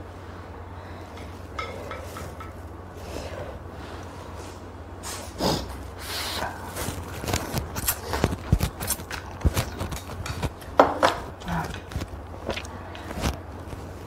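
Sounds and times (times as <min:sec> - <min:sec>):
steady low hum: 0:00.0 - 0:14.0
noodles being slurped: 0:11.4 - 0:14.0
wet chewing smacks: 0:11.9 - 0:13.4.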